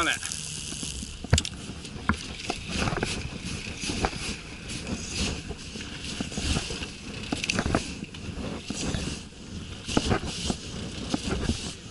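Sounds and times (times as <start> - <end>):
fishing reel knocks and clicks: 0.0 - 4.4
wind noise on microphone: 0.0 - 11.9.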